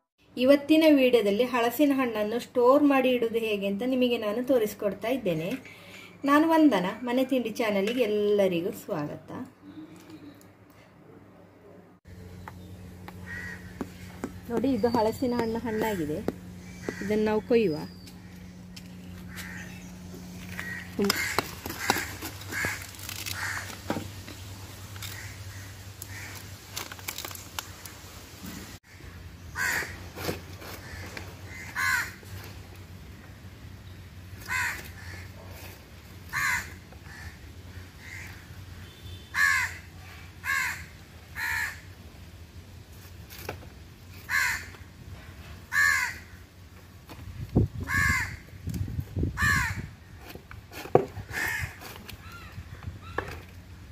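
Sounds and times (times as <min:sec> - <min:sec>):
bird calling: 0:12.3 - 0:26.5.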